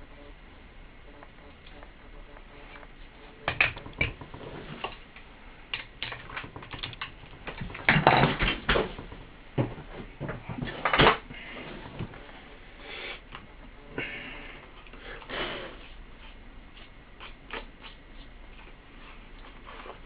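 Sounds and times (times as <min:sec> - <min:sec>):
knocks and scrapes of woofer handling: 0:06.2 - 0:12.3.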